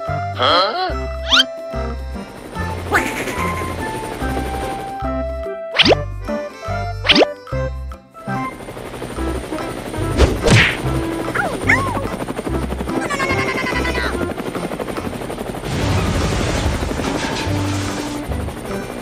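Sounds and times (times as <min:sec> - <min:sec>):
playful background music: 0:00.0 - 0:19.0
helicopter rotor effect: 0:01.0 - 0:05.2, 0:08.2 - 0:19.0.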